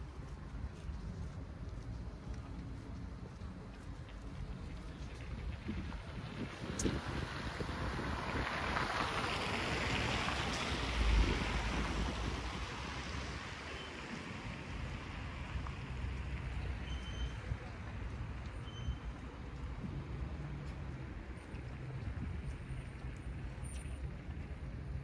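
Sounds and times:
wind buffeting microphone: 0:05.2 - 0:09.0.

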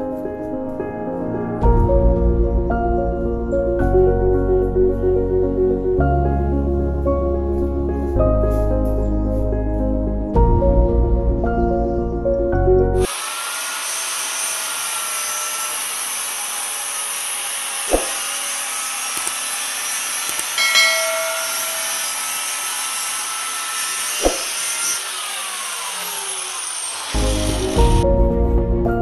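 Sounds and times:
angle grinder whining: 0:13.1 - 0:27.8.

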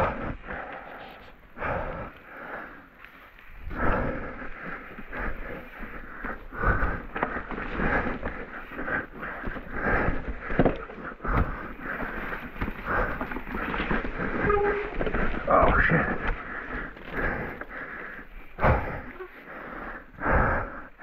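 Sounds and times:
bike riding rumble on muddy trail: 0:00.0 - 0:21.0
heavy breathing: 0:00.0 - 0:21.0.

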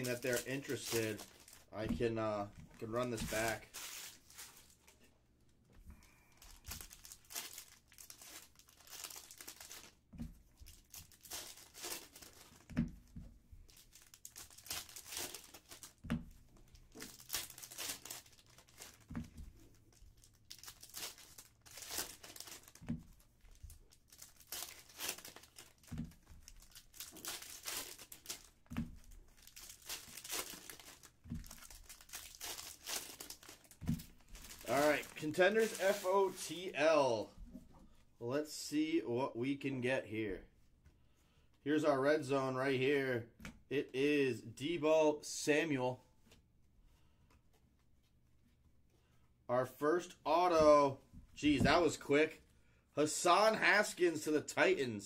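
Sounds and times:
foil wrappers crinkling and tearing: 0:00.0 - 0:01.9, 0:02.8 - 0:05.0, 0:06.1 - 0:10.0, 0:10.6 - 0:12.7, 0:13.7 - 0:16.0, 0:16.6 - 0:36.7.

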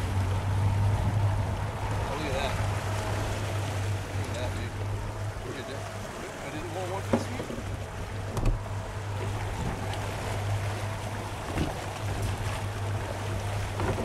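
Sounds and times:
boat engine humming: 0:00.0 - 0:14.0
water washing along hull: 0:00.0 - 0:14.0
wind on microphone: 0:07.4 - 0:12.4.

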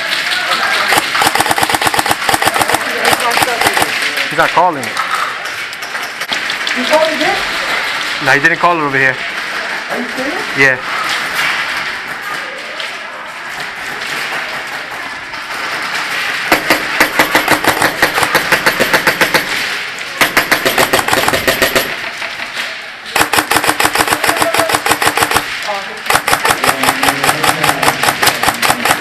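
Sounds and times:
noisy arena din: 0:00.0 - 0:29.0
airsoft rifle automatic fire: 0:00.7 - 0:04.4, 0:15.8 - 0:22.2, 0:23.1 - 0:29.0.

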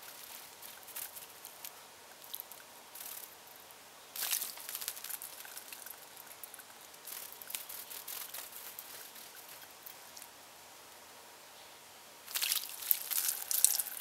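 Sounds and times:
wings fluttering: 0:00.0 - 0:10.3, 0:12.3 - 0:14.0
bird splashing water: 0:04.2 - 0:10.3, 0:12.3 - 0:14.0.

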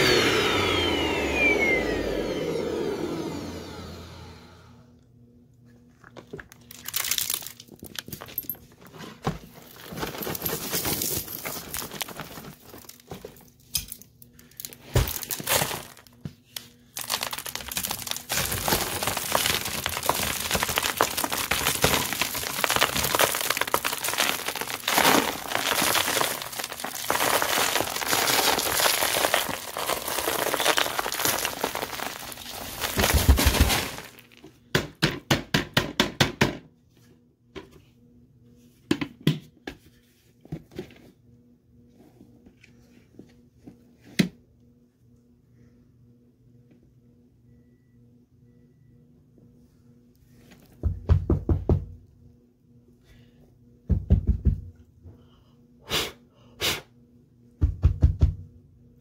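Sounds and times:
dry debris crunching: 0:06.5 - 0:08.6, 0:09.4 - 0:13.5, 0:14.6 - 0:16.1, 0:16.9 - 0:34.5.

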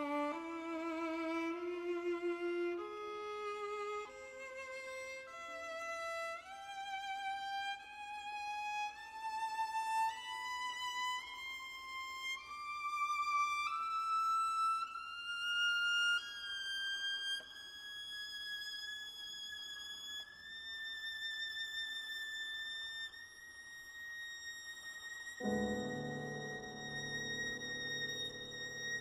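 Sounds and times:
viola playing held notes: 0:25.4 - 0:29.0.

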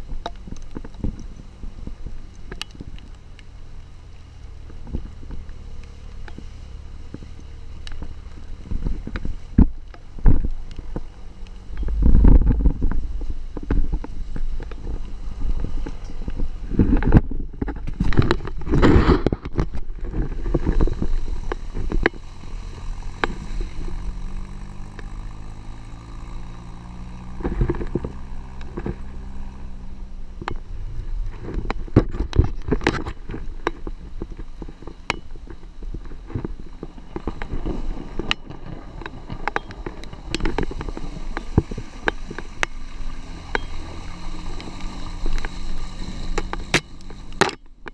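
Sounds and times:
off-road vehicle engine rumble: 0:00.0 - 0:47.9
knocks and rattles of vehicle body: 0:11.6 - 0:22.3.

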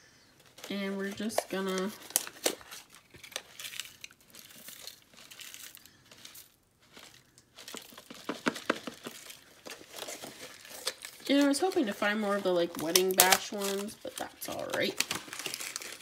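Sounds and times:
foil wrapper crinkling: 0:00.3 - 0:16.0.

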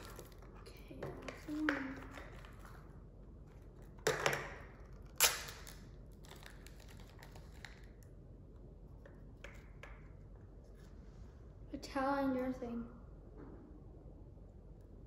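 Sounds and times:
plastic wrapper crinkling: 0:04.9 - 0:08.1.

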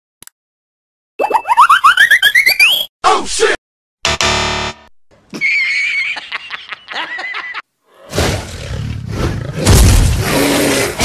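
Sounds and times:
low rough roar: 0:08.0 - 0:11.0.

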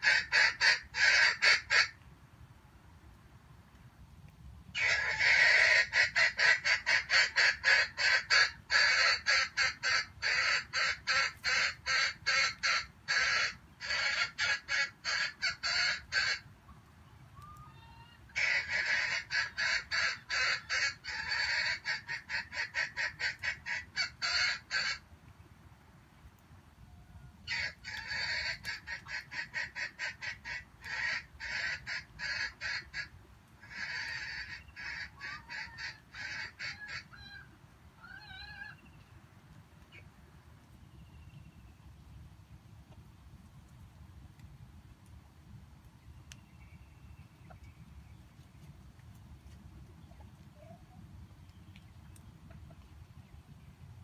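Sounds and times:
chicken clucking: 0:51.8 - 0:52.9.

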